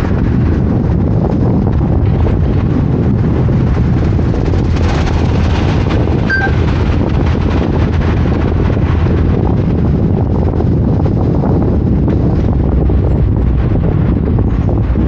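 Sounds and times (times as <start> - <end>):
car driving rumble: 0.0 - 15.0
wind noise on microphone: 0.0 - 15.0
short high tone: 6.3 - 6.6.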